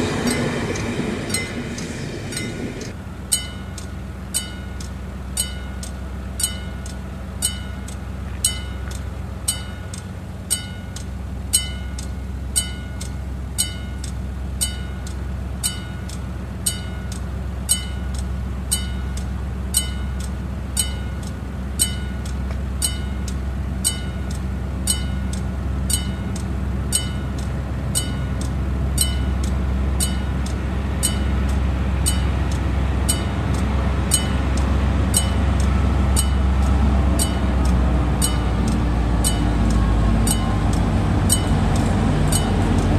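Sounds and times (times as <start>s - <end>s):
diesel train rumble: 0.0s - 42.9s
level crossing bell: 10.5s - 11.0s, 11.6s - 14.0s, 16.7s - 17.1s, 20.8s - 21.2s, 21.8s - 22.2s, 22.8s - 24.3s, 24.9s - 25.3s, 27.0s - 27.4s.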